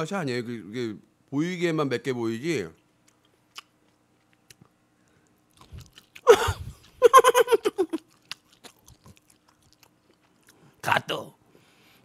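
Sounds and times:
man chewing with wet smacks: 0:02.7 - 0:10.8.

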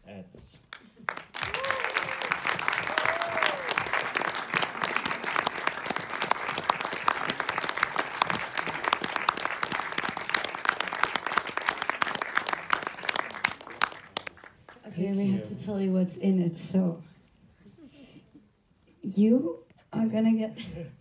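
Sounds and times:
audience applauding: 0:00.7 - 0:14.9.

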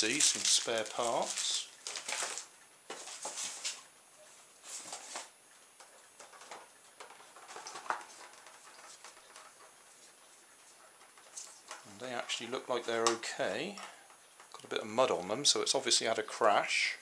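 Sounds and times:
packaging rustling and scraping: 0:00.0 - 0:03.8, 0:04.6 - 0:05.3, 0:06.2 - 0:10.1.

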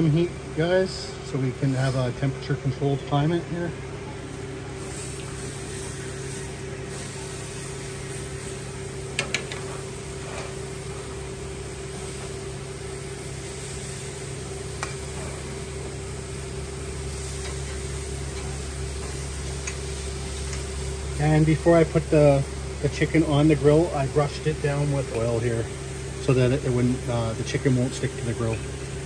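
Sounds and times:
gas grill humming and hissing: 0:00.0 - 0:29.0
metal tongs clicking on grill grates: 0:09.2 - 0:10.6, 0:14.8 - 0:15.4, 0:17.2 - 0:20.8.

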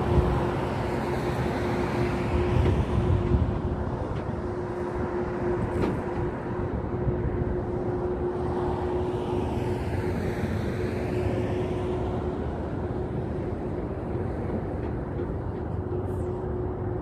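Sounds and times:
engine rumble: 0:00.0 - 0:17.0.

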